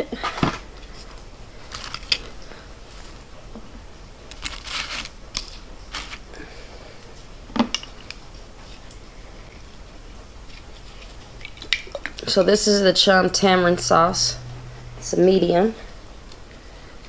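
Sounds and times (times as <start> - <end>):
rustle: 4.3 - 6.3.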